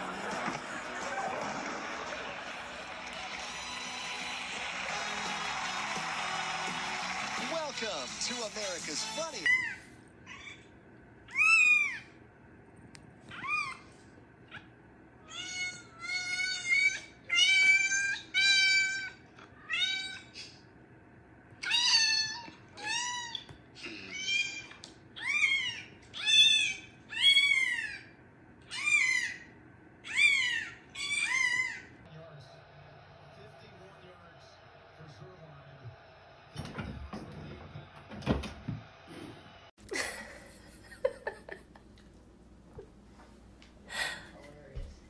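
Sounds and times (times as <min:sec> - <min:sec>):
cat meowing: 0:11.3 - 0:12.1, 0:13.3 - 0:13.8, 0:15.2 - 0:20.4, 0:21.6 - 0:28.0.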